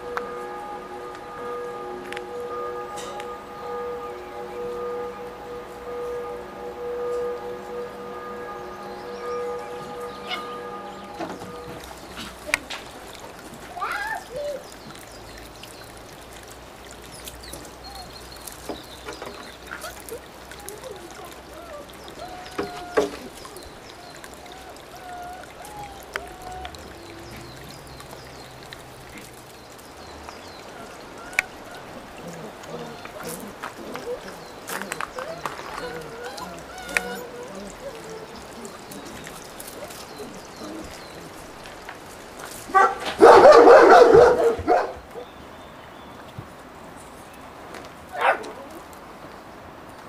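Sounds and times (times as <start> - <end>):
birds chirping: 0.0 - 47.6
puppies whining and squeaking: 9.6 - 12.8, 19.4 - 27.8, 30.7 - 41.6.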